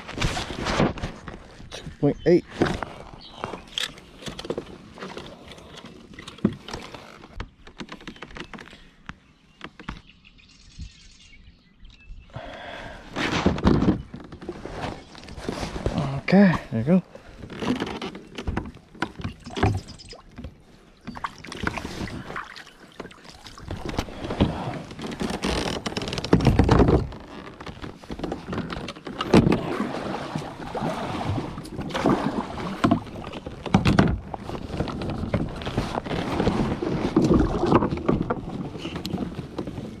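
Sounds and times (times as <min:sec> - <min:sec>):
water splashing around a kayak: 0:13.0 - 0:40.0.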